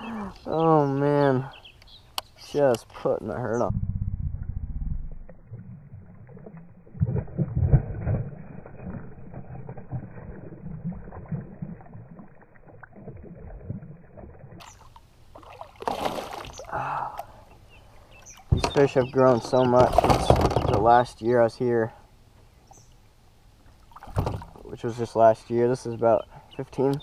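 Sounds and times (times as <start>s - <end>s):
fish splashing in water: 6.0s - 17.2s.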